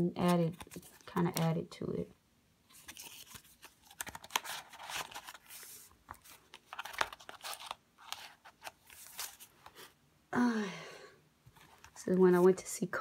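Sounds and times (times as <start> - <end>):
paper pages rustling: 0.2 - 1.5, 2.7 - 10.0.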